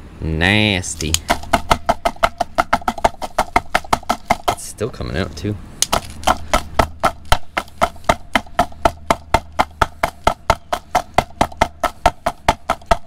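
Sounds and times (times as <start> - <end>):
plastic fan knocking on concrete: 1.0 - 4.8, 5.8 - 13.0.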